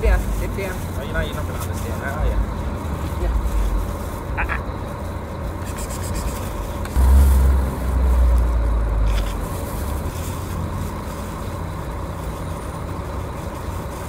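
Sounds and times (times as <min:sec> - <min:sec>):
loud low rumble: 0:07.0 - 0:11.0
plastic bag crinkling: 0:07.3 - 0:14.0.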